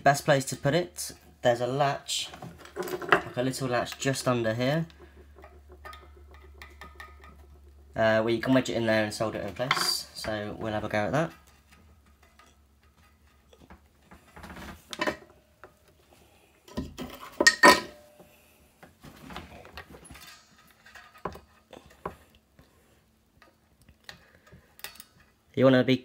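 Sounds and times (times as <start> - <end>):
light metallic clinks and taps: 3.9 - 7.9.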